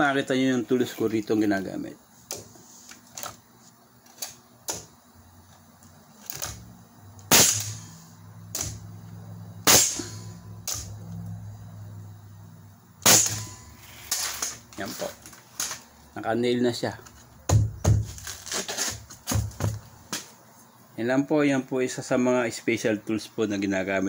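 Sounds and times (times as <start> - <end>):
low steady hum: 0.0 - 24.0
nail gun shots: 7.3 - 8.8, 9.6 - 10.9, 13.0 - 13.6.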